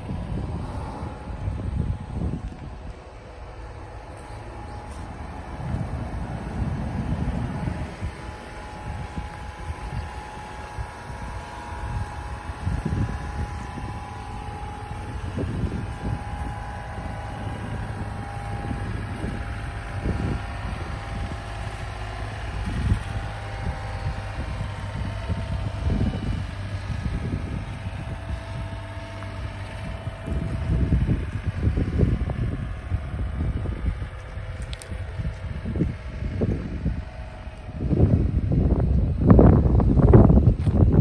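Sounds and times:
steady low rumble: 0.0 - 41.0
wind buffeting microphone: 0.0 - 41.0.

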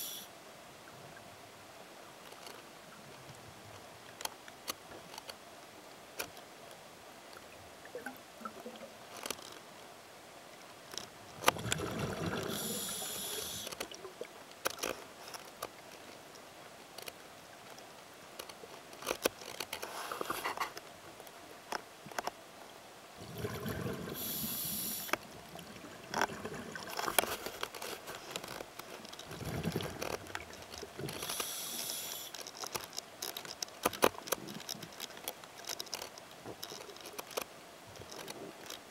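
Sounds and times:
regulator hiss: 0.0 - 0.3, 12.4 - 13.7, 24.2 - 25.2, 31.2 - 32.4
small clicks and crackles: 2.2 - 9.8, 10.8 - 22.4, 23.3 - 38.9
exhaled bubbles underwater: 11.5 - 13.1, 23.2 - 24.4.

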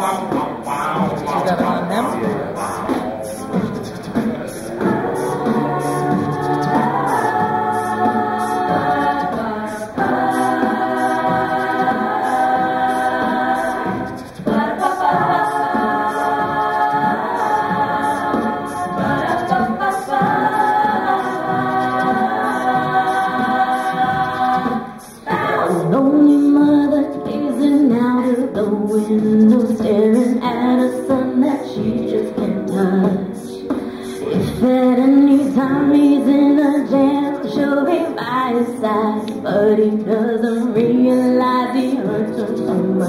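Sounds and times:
backing voices holding chords: 0.0 - 43.0
woman singing lead: 0.0 - 43.0.

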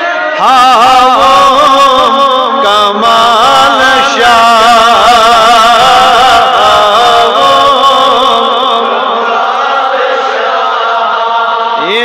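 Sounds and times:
man chanting through microphones: 0.0 - 9.2, 11.7 - 12.0.

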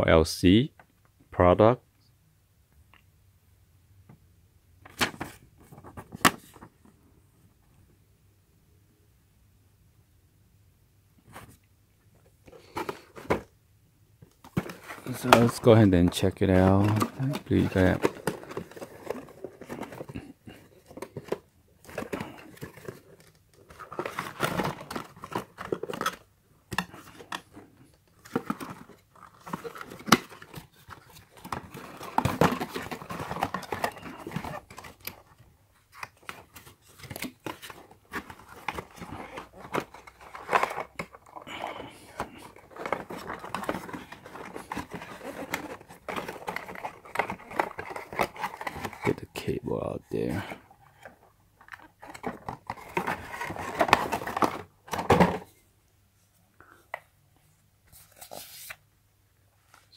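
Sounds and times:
cardboard rustling and scraping: 14.4 - 49.2, 50.1 - 55.6, 57.9 - 58.8
paper crinkling: 14.5 - 26.2, 28.2 - 49.2, 57.9 - 58.8.

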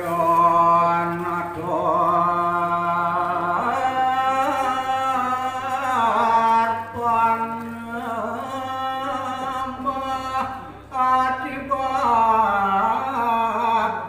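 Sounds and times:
man chanting into microphone: 0.0 - 14.0.

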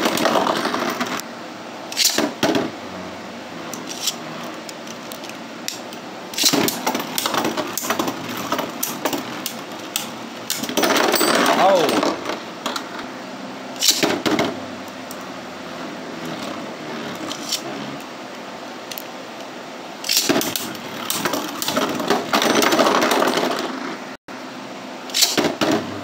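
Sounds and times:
spinning top whirring: 1.9 - 12.3
tops clacking and scraping: 3.6 - 13.0.

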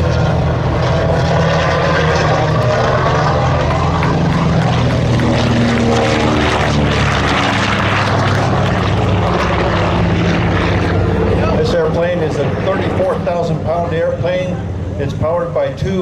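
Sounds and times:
propeller plane engines droning: 0.0 - 16.0.

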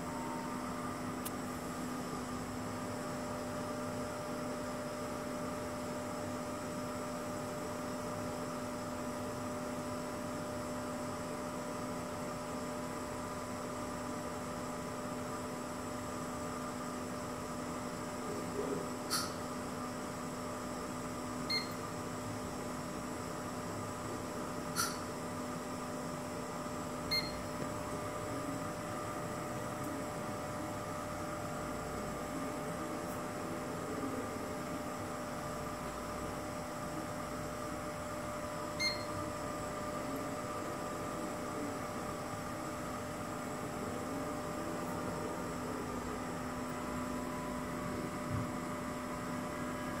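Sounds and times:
measuring machine humming: 0.0 - 50.0
sharp click: 19.1 - 19.4, 24.8 - 25.0
high beep: 21.5 - 21.8, 27.1 - 27.5, 38.8 - 39.2.

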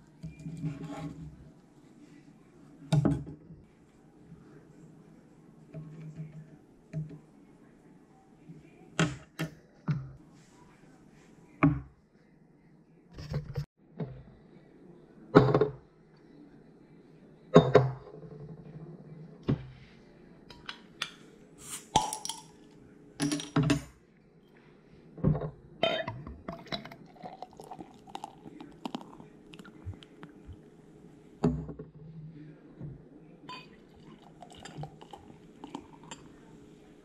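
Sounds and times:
beer pouring into glass: 26.5 - 30.6, 33.5 - 36.5
glasses clinking: 33.5 - 36.5.

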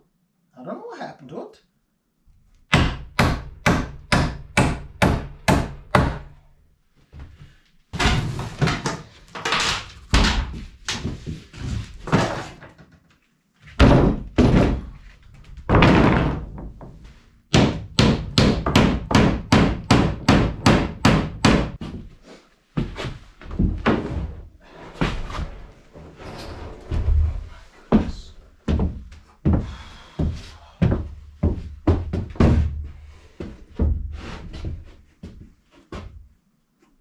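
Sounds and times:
wood thuds and scrapes: 7.9 - 12.8, 13.7 - 17.1, 22.8 - 28.1
hammer driving nails into wood: 17.5 - 21.8.

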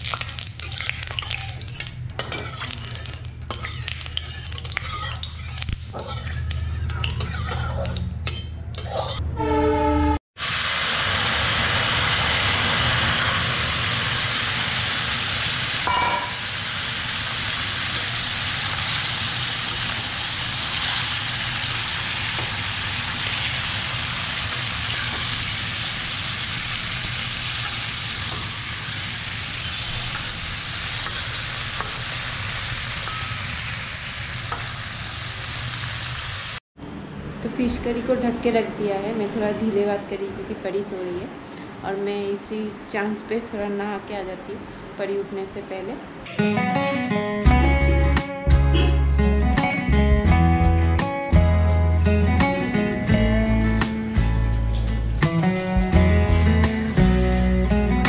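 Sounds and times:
food sizzling in hot oil: 0.0 - 8.4, 10.4 - 36.6
spatula stirring: 0.0 - 9.2
short tone: 9.3 - 10.2.

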